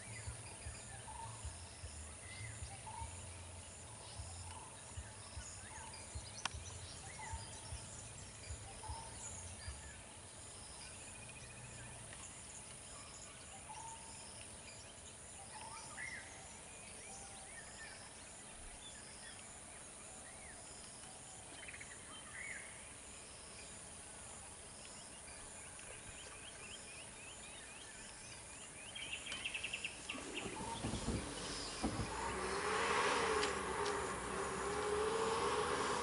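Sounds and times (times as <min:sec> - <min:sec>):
outdoor hiss: 0:07.6 - 0:36.0
birds chirping and calling: 0:28.0 - 0:34.8
irregular crackles: 0:29.3 - 0:36.0
low thumps: 0:30.0 - 0:36.0.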